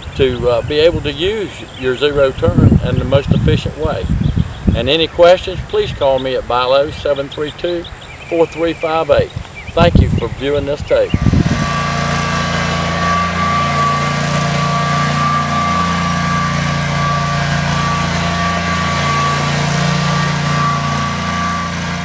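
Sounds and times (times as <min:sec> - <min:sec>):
high whine: 0:09.8 - 0:22.0
mower engine running: 0:10.8 - 0:22.0.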